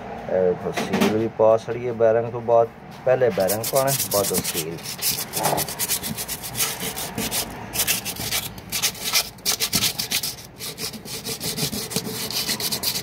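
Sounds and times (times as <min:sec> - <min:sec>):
rubbing and scraping on plastic: 0:03.3 - 0:13.0.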